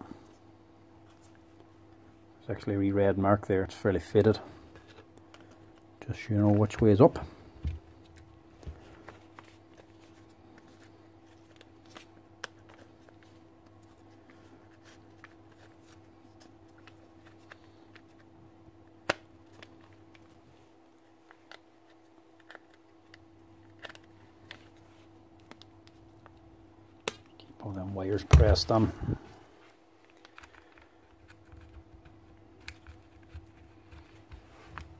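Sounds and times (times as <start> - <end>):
steady faint hum: 0.0 - 34.9
plastic and metal parts clicking: 30.0 - 31.8.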